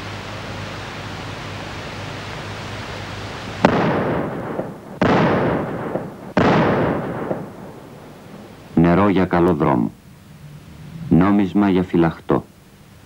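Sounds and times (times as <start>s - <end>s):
film hiss: 0.0s - 13.0s
rifle shots with echo: 3.6s - 8.6s.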